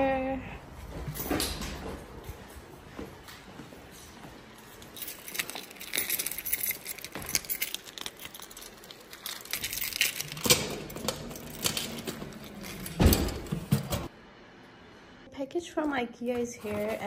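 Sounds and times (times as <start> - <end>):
keys jangling: 4.8 - 13.5.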